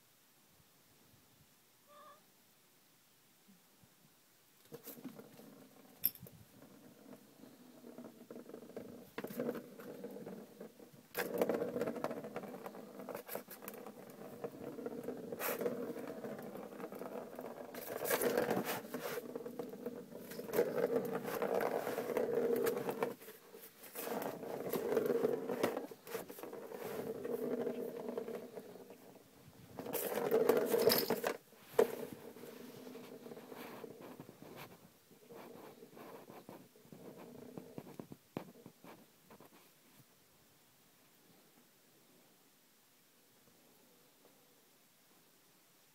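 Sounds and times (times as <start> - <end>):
plastic ball rolling in track: 4.7 - 34.6.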